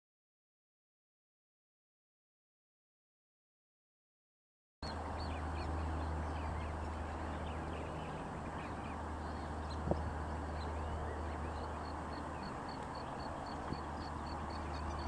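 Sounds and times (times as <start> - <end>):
birds chirping and twittering: 4.8 - 15.0
steady low rumble: 4.8 - 15.0.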